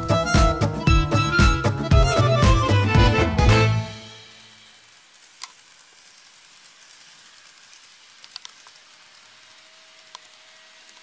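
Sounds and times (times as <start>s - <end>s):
model train running hiss: 0.0s - 11.0s
light track clicks: 5.2s - 11.0s.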